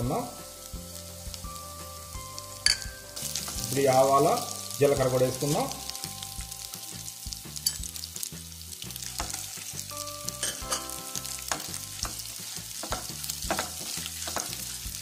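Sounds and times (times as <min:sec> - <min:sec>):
oil sizzling in a pan: 0:00.0 - 0:15.0
sharp crackles of frying seeds: 0:00.0 - 0:15.0
spatula stirring: 0:09.0 - 0:15.0.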